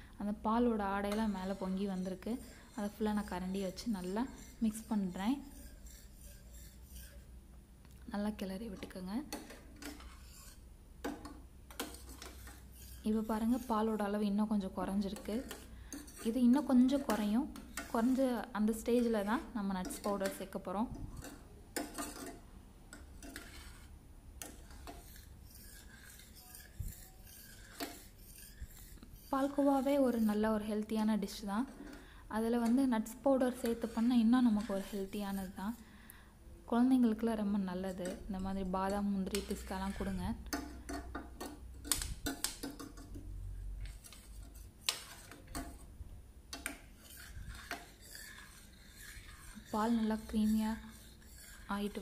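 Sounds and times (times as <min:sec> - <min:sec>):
metal ladle scraping a pan: 0:00.6 - 0:07.4, 0:08.3 - 0:36.0, 0:36.8 - 0:52.0
ladle rubbing in milk: 0:01.0 - 0:07.3, 0:09.8 - 0:10.6, 0:11.9 - 0:14.2, 0:23.2 - 0:32.0, 0:32.6 - 0:35.8, 0:46.9 - 0:52.0.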